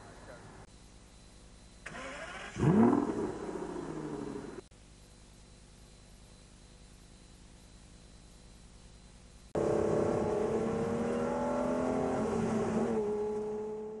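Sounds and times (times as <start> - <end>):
car engine accelerating: 1.9 - 4.6, 9.6 - 14.0.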